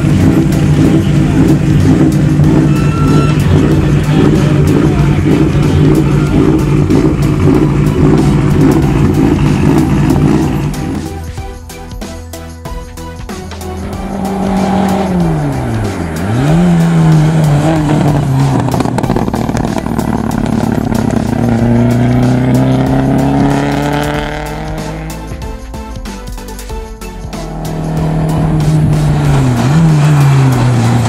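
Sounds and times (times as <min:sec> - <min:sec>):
car engine revving past: 0:13.7 - 0:25.2, 0:27.4 - 0:31.0.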